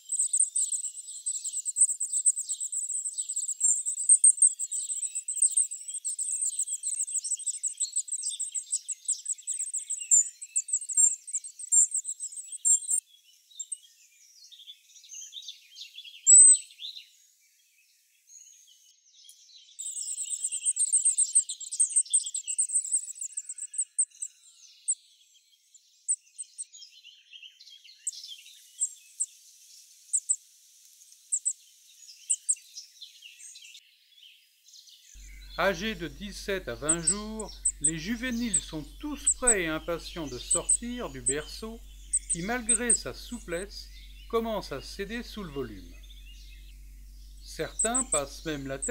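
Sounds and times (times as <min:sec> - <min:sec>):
nestlings chirping: 0:00.0 - 0:13.0, 0:16.3 - 0:16.6, 0:19.8 - 0:24.3, 0:30.1 - 0:31.6, 0:32.2 - 0:32.6, 0:35.2 - 0:48.9
thin bird calls: 0:00.0 - 0:13.0, 0:15.3 - 0:16.9, 0:19.3 - 0:25.2, 0:26.0 - 0:33.8, 0:35.2 - 0:48.9.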